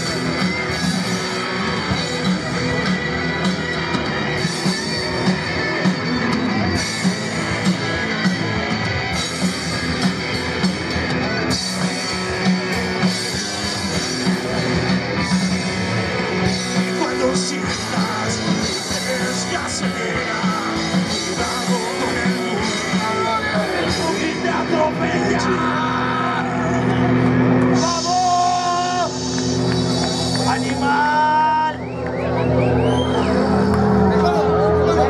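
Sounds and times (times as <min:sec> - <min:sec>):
drum kit beat: 0:00.0 - 0:25.4
electric guitars: 0:00.0 - 0:35.0.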